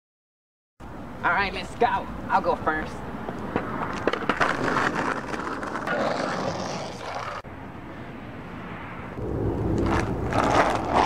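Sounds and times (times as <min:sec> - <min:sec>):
skateboard wheels rolling on concrete: 0:01.3 - 0:11.0.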